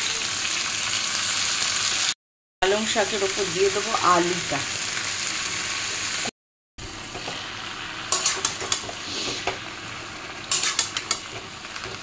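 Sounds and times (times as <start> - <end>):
vegetables sizzling in oil: 0.0 - 12.0
spatula scraping a pan: 8.1 - 9.6, 10.4 - 11.6.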